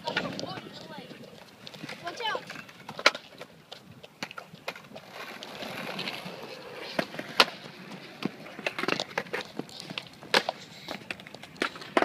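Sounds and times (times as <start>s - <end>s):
sharp skateboard clack: 0.0s - 12.0s
skateboard wheels rolling on concrete: 0.0s - 12.0s.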